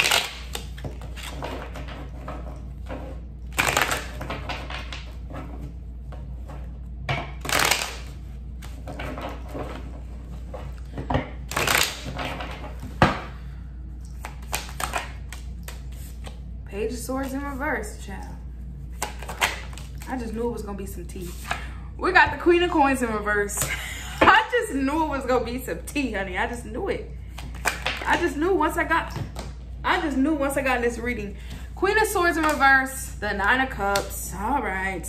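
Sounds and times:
cards being shuffled: 3.5 - 5.1, 7.4 - 10.8, 11.5 - 12.8, 14.2 - 16.4, 18.9 - 20.1.

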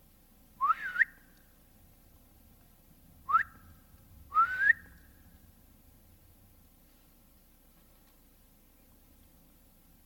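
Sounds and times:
person whistling rising pitch: 4.3 - 4.9.

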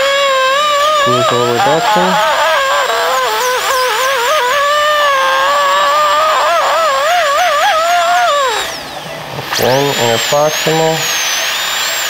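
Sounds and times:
dental drill whining: 0.0 - 12.0.

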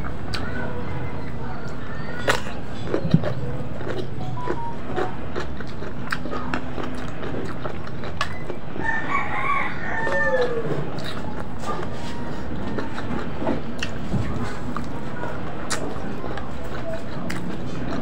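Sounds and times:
rooster crowing: 8.8 - 10.8.

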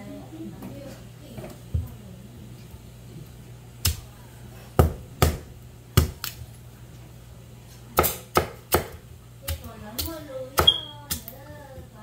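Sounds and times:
knife chopping on wooden board: 4.8 - 6.3, 8.0 - 11.3.

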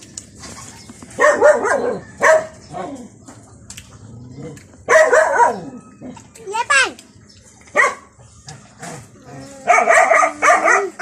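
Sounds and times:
dog barking: 1.2 - 2.6, 4.8 - 5.8, 7.7 - 8.2, 9.6 - 11.0.

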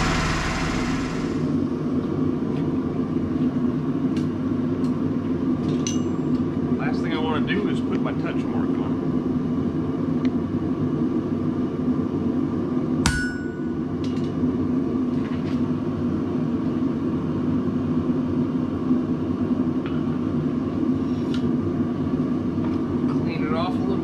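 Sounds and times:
forge running: 0.0 - 1.8
hammer striking steel on anvil: 13.0 - 13.8.

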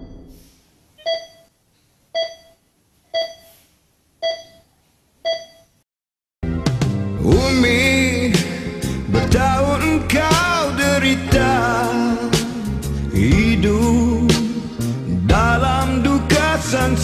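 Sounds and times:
heart monitor beeps: 1.0 - 1.5, 2.2 - 3.6, 4.2 - 5.8
music: 6.4 - 17.0.

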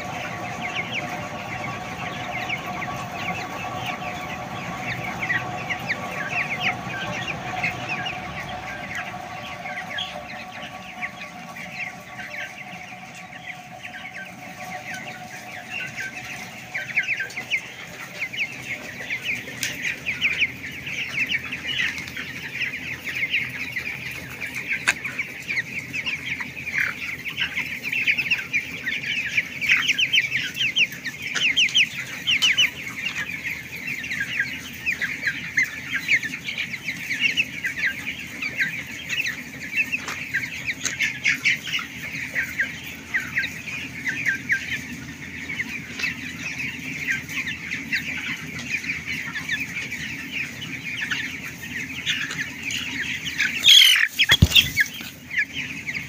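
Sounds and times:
steady low hum: 0.0 - 27.9
chickens peeping and chirping: 0.0 - 56.0.

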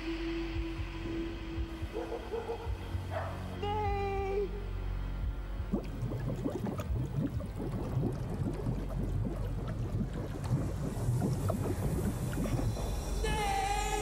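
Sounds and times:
low rumble: 0.0 - 14.0
water bubbling and splashing: 5.6 - 13.2.

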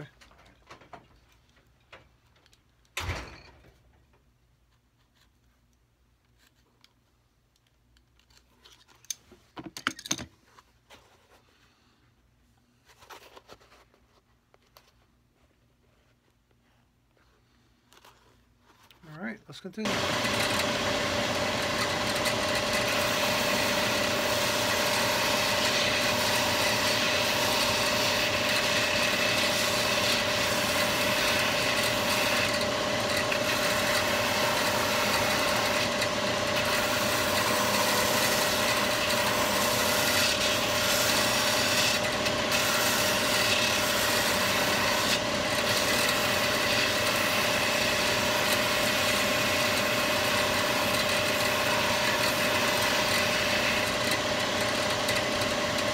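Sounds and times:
electric motor humming: 19.8 - 55.9.

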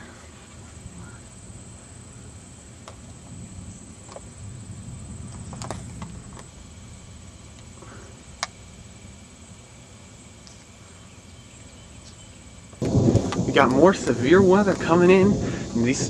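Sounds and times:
low even rumble: 12.8 - 16.0.

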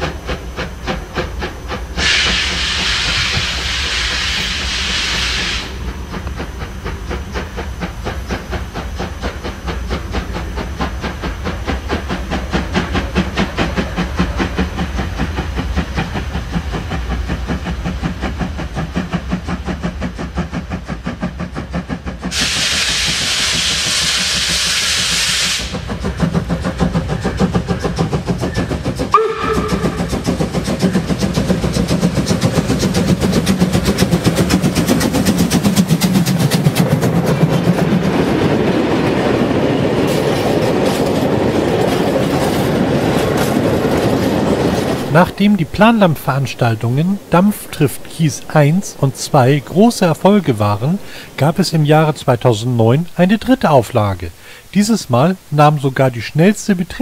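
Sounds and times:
steam hiss: 0.0 - 57.0
steam locomotive exhaust beating: 0.0 - 57.0
wagon wheels rumbling and clattering: 26.0 - 46.0.

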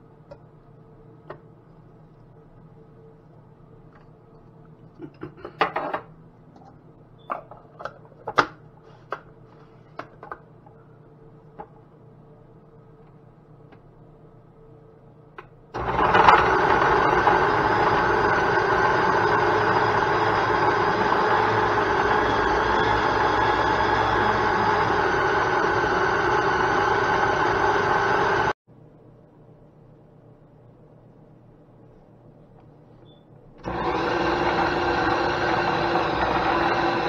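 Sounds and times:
blender motor grinding: 15.8 - 28.6, 33.6 - 37.0.

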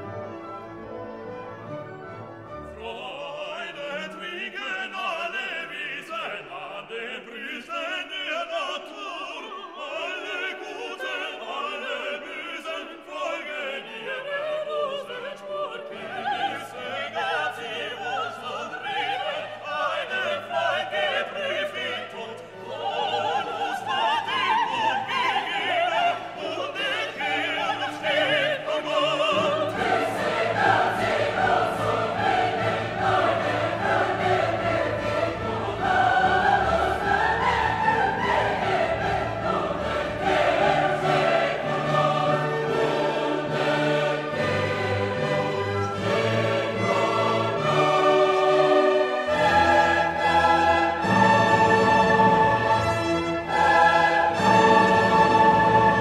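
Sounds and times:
orchestra playing: 0.0 - 4.5, 27.2 - 56.0
operatic singing: 2.5 - 56.0.

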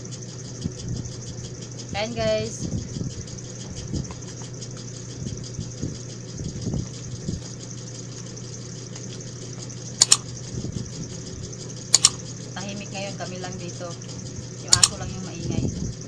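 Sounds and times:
low mechanical hum: 0.0 - 16.0
sharp double click: 10.0 - 10.3, 11.9 - 12.2, 14.7 - 15.1.

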